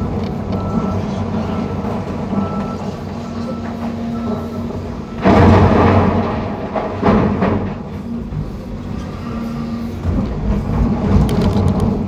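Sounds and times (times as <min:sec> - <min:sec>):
excavator engine and hydraulics: 0:00.0 - 0:12.0
loud burst of noise: 0:03.6 - 0:12.0.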